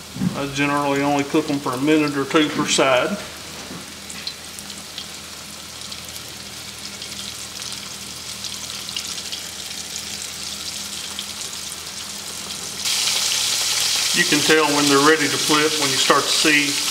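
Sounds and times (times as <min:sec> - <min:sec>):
meat sizzling and popping in oil: 0:03.9 - 0:16.9.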